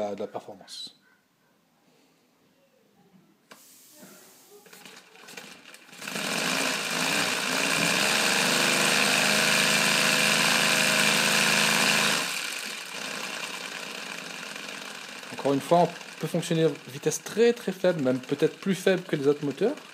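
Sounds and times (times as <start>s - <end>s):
compressed-air engine running: 6.0s - 19.9s.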